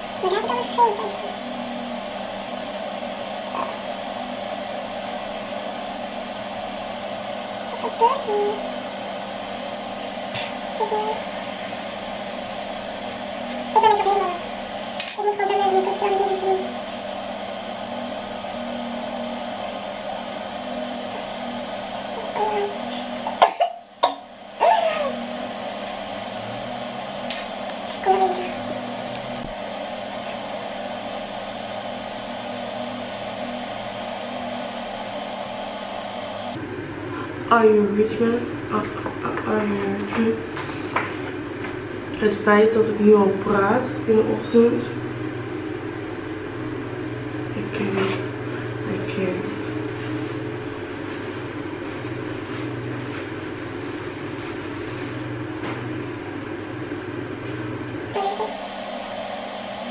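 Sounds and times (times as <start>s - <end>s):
low pulsing drone: 0.0s - 40.5s
low hum: 0.0s - 59.9s.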